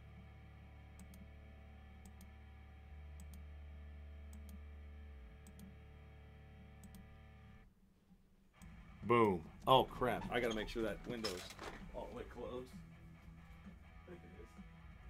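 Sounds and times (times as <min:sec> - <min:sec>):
faint low hum: 0:00.0 - 0:15.0
computer mouse button clicking: 0:05.4 - 0:05.7, 0:06.8 - 0:07.0.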